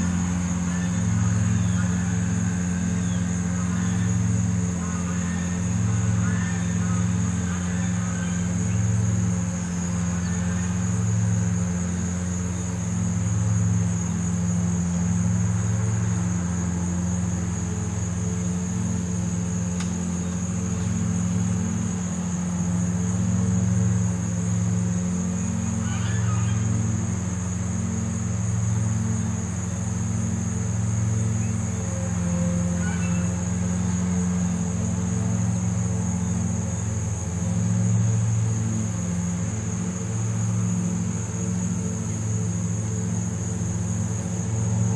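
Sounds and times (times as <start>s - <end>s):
high-pitched insect drone: 0.0s - 44.9s
low engine hum: 0.0s - 44.9s
faint bird chirps: 24.8s - 37.1s.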